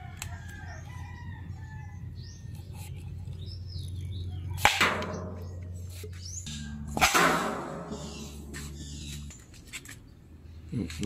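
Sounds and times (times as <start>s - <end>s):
low steady hum: 0.0s - 11.0s
bamboo popgun pop: 4.6s - 5.5s, 7.0s - 8.1s.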